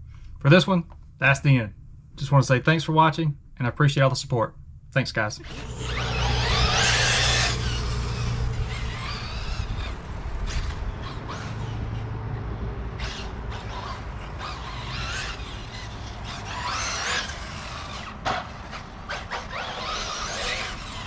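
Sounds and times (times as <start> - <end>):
steady low rumble: 0.0 - 14.7
nitro rc car engine revving: 5.4 - 21.0.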